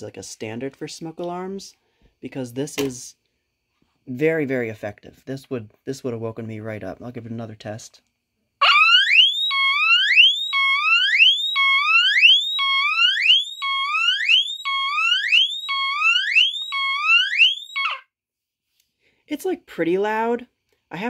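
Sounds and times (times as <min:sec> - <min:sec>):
smoke alarm whooping: 0:08.6 - 0:18.1.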